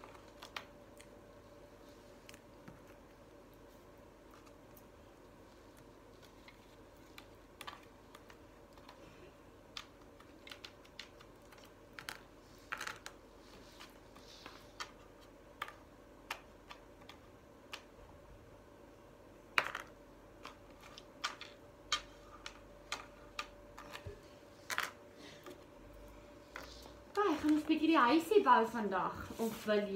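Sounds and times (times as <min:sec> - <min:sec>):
wooden blocks clicking on table: 0:09.7 - 0:13.2, 0:19.5 - 0:24.0
blocks clattering: 0:19.5 - 0:25.0.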